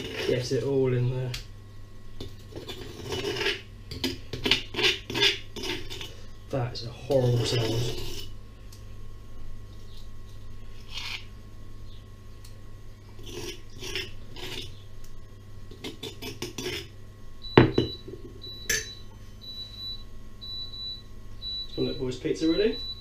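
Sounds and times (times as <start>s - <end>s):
metal spoon scraping stone mortar: 2.5s - 3.6s, 4.4s - 6.1s, 7.3s - 8.3s, 10.8s - 11.3s, 15.8s - 16.9s.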